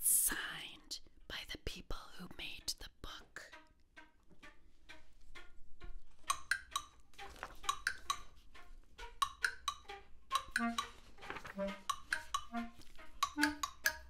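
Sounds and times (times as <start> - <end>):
hand percussion light taps: 9.2 - 10.9, 13.2 - 14.0.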